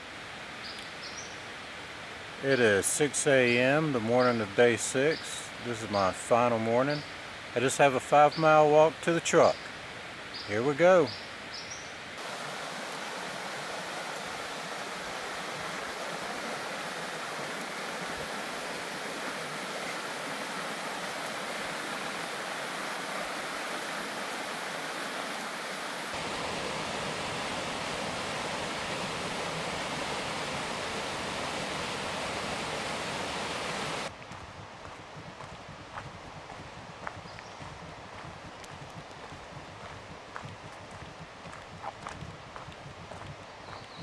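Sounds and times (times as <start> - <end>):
creek rushing over rocks: 12.2 - 43.3.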